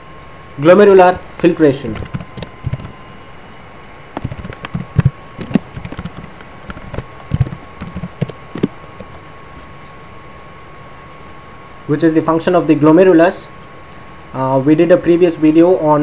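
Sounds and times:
typing on keyboard: 1.9 - 3.0, 4.2 - 9.2.

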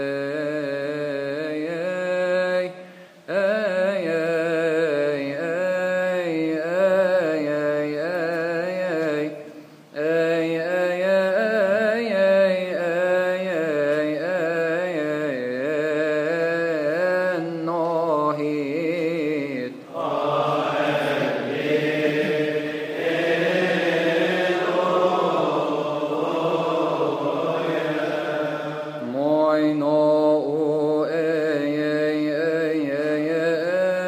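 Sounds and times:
man chanting: 0.0 - 34.0
voices chanting together: 19.9 - 33.4.

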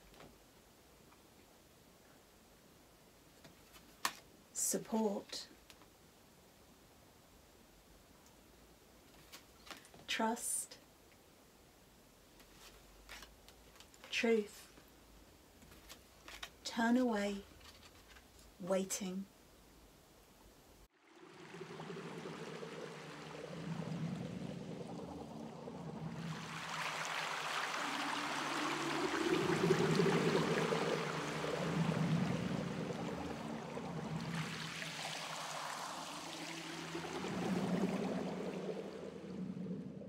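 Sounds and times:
rushing water: 20.9 - 40.0
synth pad tones: 21.0 - 40.0.

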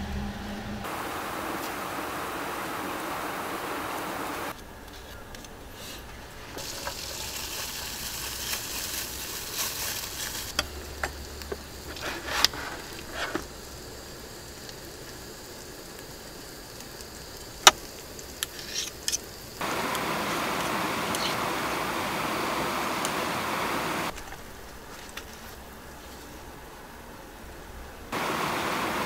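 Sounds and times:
loud steady hiss: 0.8 - 29.0
eggs sizzling in a frying pan: 6.6 - 24.2.

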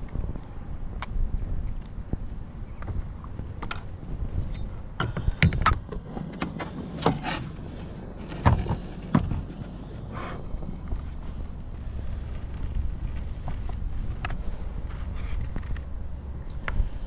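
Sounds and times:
wind on microphone: 0.0 - 17.0
knocks and rattles of fishing gear: 5.0 - 16.2.

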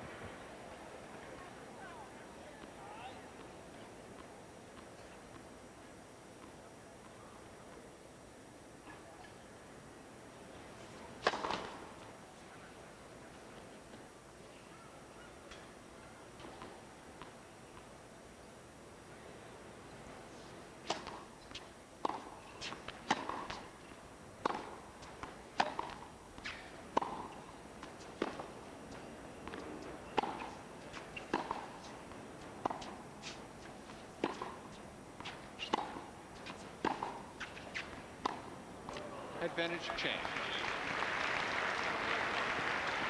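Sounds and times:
hushed stadium background: 0.0 - 43.0
tennis racquet hits: 11.2 - 11.9, 20.8 - 23.8, 24.4 - 39.1
tennis ball bounces: 11.2 - 12.1, 20.8 - 39.0.

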